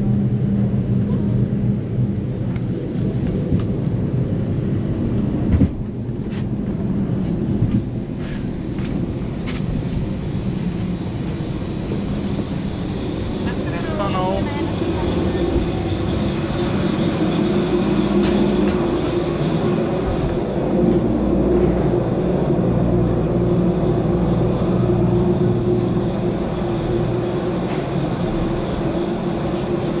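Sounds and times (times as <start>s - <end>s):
machine drone with low hum: 0.0s - 30.0s.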